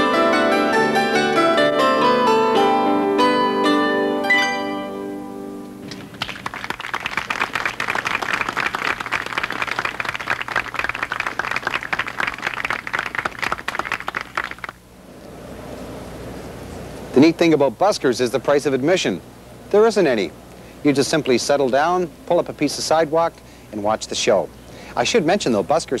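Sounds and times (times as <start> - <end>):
plucked string instrument: 0.0 - 6.2
crowd applauding: 5.8 - 14.8.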